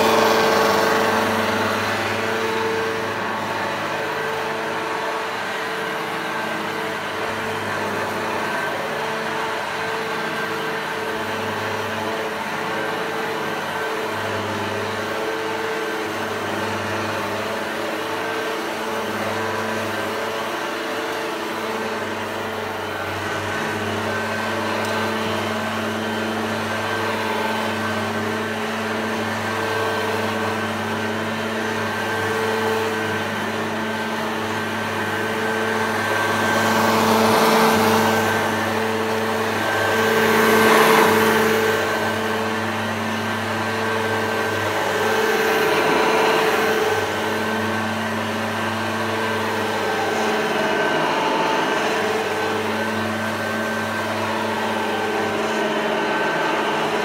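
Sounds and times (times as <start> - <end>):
upright vacuum cleaner running: 0.0 - 57.0.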